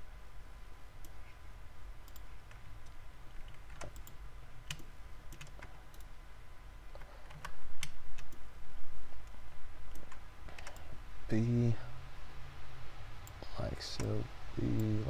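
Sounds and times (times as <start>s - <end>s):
steady low hum: 0.0s - 15.0s
computer mouse clicks: 2.0s - 6.1s, 6.9s - 8.5s, 9.2s - 10.9s.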